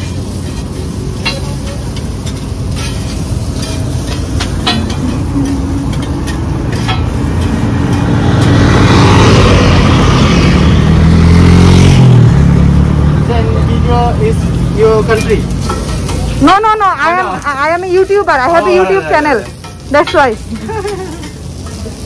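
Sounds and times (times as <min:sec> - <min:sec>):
motorcycle passing: 0:00.0 - 0:22.0
road traffic rumbling: 0:00.0 - 0:22.0
metal spatula clicking on griddle: 0:00.4 - 0:08.5, 0:19.5 - 0:22.0.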